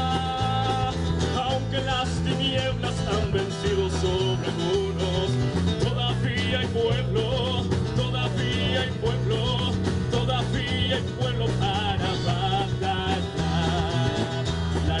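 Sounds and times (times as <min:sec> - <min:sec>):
live band playing: 0:00.0 - 0:15.0
low bass notes: 0:00.0 - 0:15.0.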